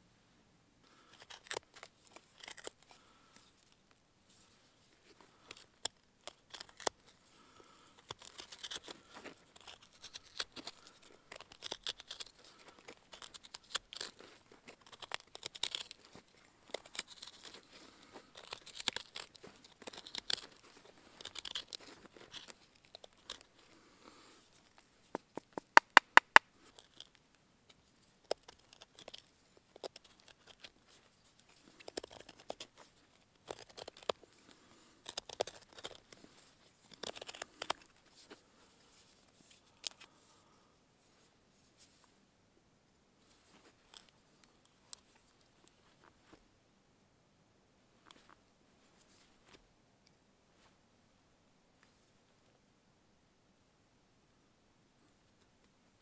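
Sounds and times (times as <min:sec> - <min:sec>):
knife scraping wood: 0:01.2 - 0:03.0, 0:05.4 - 0:23.5, 0:33.4 - 0:40.2.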